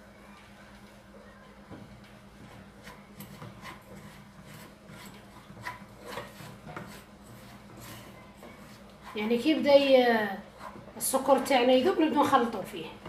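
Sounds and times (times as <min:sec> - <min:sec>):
spoon scraping sugar in saucepan: 0:02.4 - 0:11.0.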